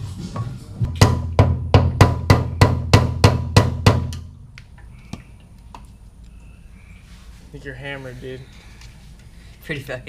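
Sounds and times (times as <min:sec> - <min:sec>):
hammer striking metal: 0:00.9 - 0:04.2.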